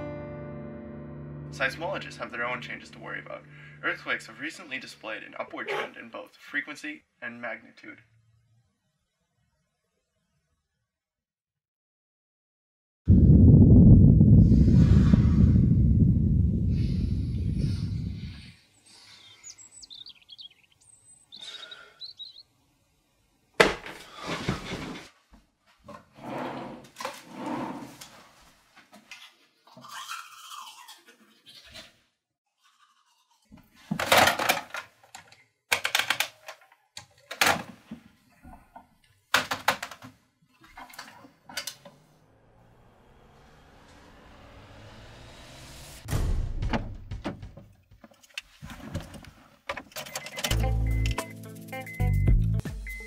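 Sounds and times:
birds chirping: 18.2s - 22.8s
toothbrushing: 29.7s - 31.9s, 32.5s - 33.6s.

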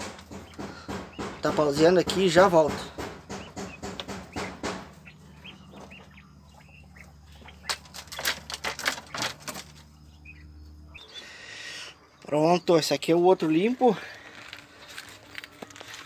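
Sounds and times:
quails scratching in litter: 0.0s - 11.4s, 13.1s - 16.0s.

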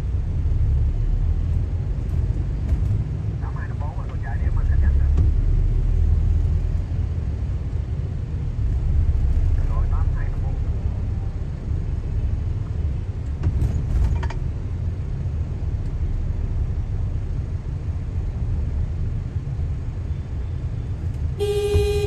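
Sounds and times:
car engine and tyres rumbling: 0.0s - 22.0s
vehicle horn honking: 21.4s - 22.0s.

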